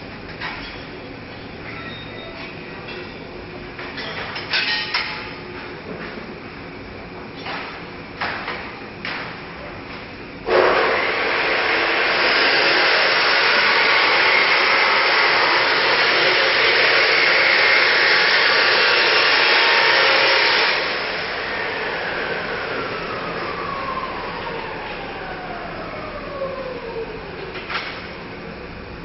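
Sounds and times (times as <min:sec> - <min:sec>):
machine rushing hiss: 0:10.4 - 0:22.8
motor whine winding down: 0:10.5 - 0:28.2.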